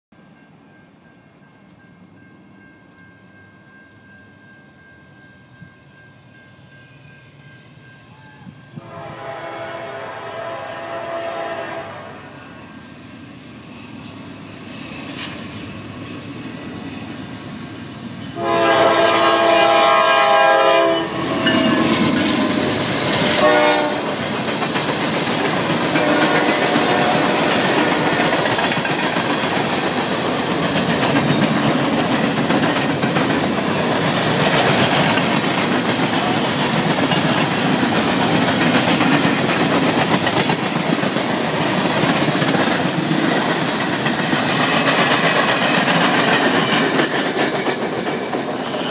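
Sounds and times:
diesel locomotives passing: 0:00.2 - 0:48.9
train air horn blasts: 0:08.1 - 0:12.6, 0:18.4 - 0:21.9, 0:23.1 - 0:24.2, 0:25.9 - 0:28.4, 0:48.6 - 0:48.9.

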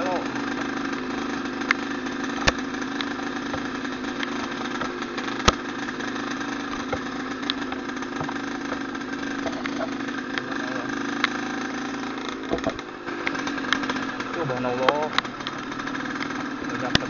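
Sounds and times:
motorcycle engine running: 0:00.0 - 0:17.0
sharp knocks: 0:02.4 - 0:05.7, 0:12.4 - 0:14.0.

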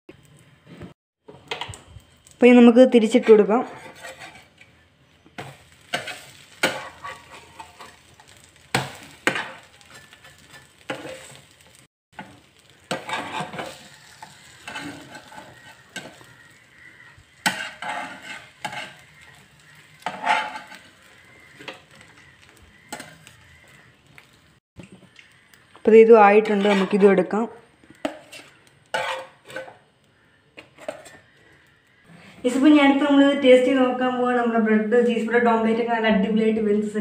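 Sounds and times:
faint frying sizzle: 0:00.2 - 0:03.2, 0:04.0 - 0:37.0
metal spatula scraping frying pan: 0:03.1 - 0:04.8, 0:05.4 - 0:23.7, 0:26.3 - 0:29.9, 0:30.6 - 0:31.4.

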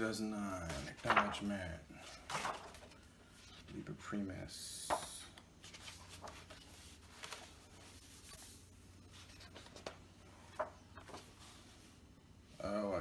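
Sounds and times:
book pages turning: 0:00.6 - 0:04.0, 0:04.9 - 0:11.9.

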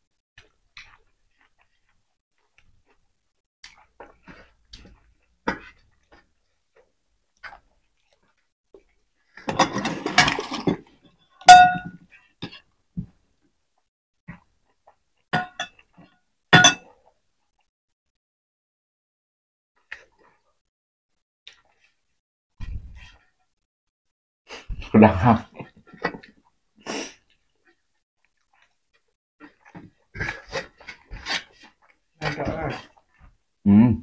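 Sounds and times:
metal plates clinking and scraping: 0:09.4 - 0:10.9, 0:11.5 - 0:12.0.

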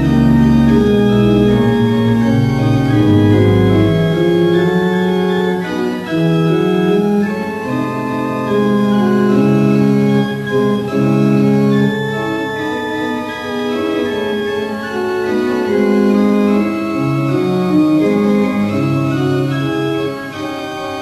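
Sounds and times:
organ music: 0:00.0 - 0:21.0.

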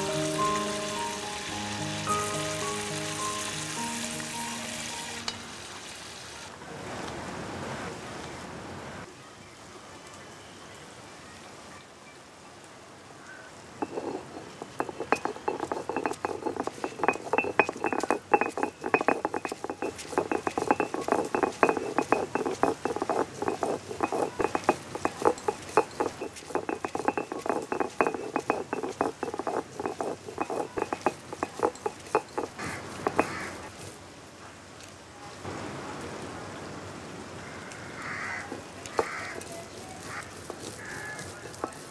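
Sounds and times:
stone roller grinding on stone: 0:13.8 - 0:33.8, 0:38.5 - 0:41.9.

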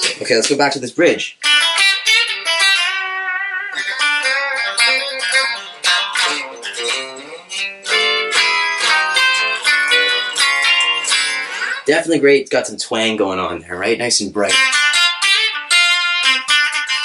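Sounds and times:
electric guitar lead with bent notes: 0:01.4 - 0:11.9, 0:14.5 - 0:17.0.

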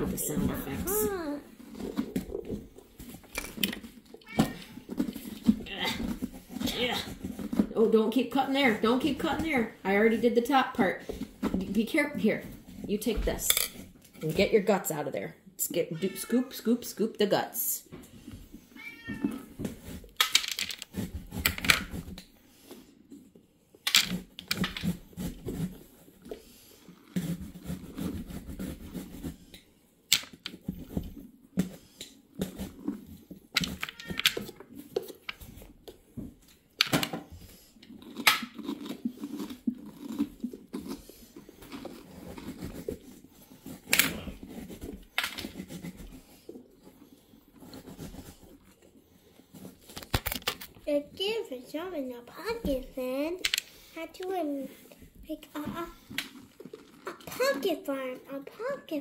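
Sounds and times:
pumpkin pulp scraping: 0:00.0 - 0:14.8, 0:24.8 - 0:29.6, 0:37.4 - 0:59.0.

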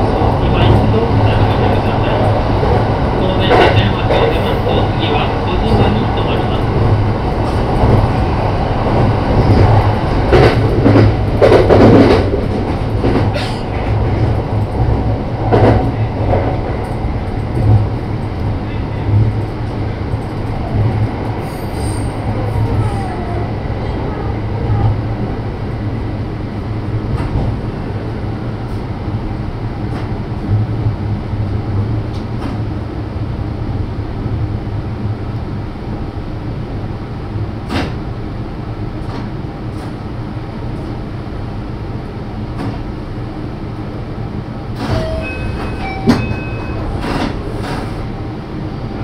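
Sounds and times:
train wheels rumbling on rail: 0:00.0 - 0:49.0.

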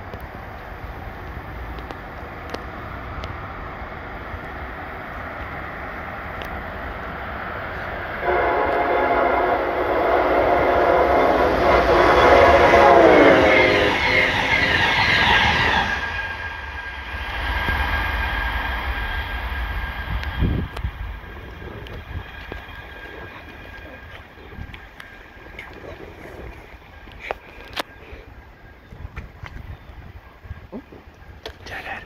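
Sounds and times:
rail clatter: 0:00.0 - 0:27.9
train cars rushing past: 0:00.0 - 0:30.6
train horn chord: 0:08.2 - 0:15.0.

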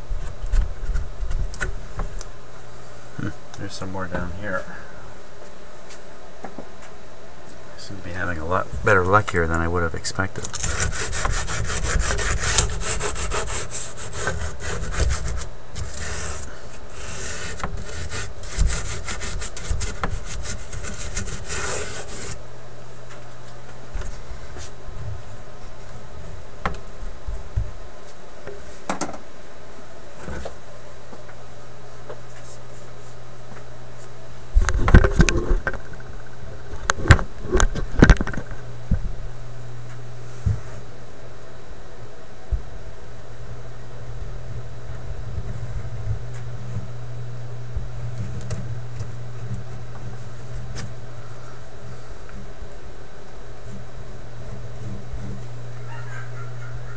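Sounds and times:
low steady hum: 0:00.0 - 0:56.9
rubbing and scraping on paper: 0:10.4 - 0:22.4.

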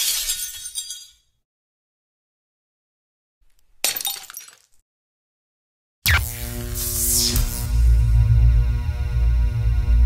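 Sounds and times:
glass shattering: 0:00.0 - 0:01.4, 0:03.8 - 0:04.8.

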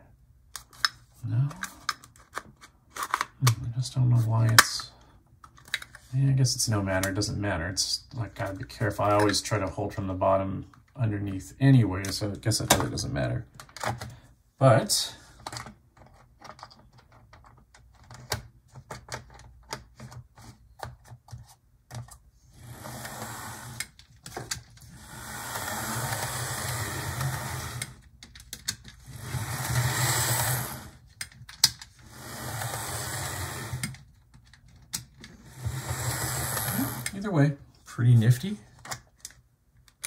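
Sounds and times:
model train motor and wheels whirring: 0:22.6 - 0:23.9, 0:24.9 - 0:28.0, 0:29.0 - 0:31.0, 0:32.0 - 0:33.9, 0:35.5 - 0:37.2.

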